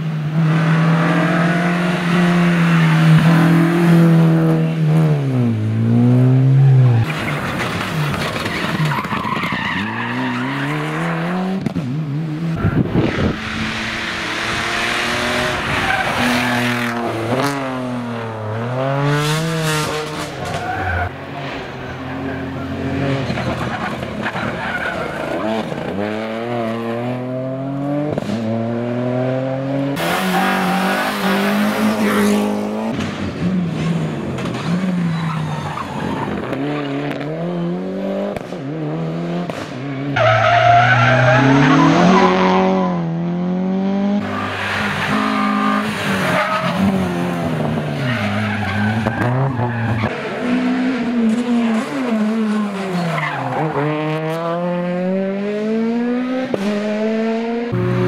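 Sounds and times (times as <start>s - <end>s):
rally car engines revving: 0.0s - 58.0s.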